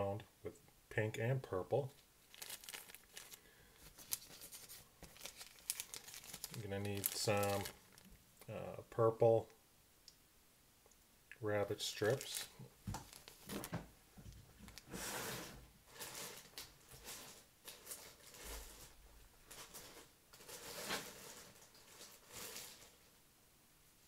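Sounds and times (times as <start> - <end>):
packets rustling and crinkling: 2.2 - 8.2, 12.0 - 23.1
short scrapes: 14.9 - 16.4.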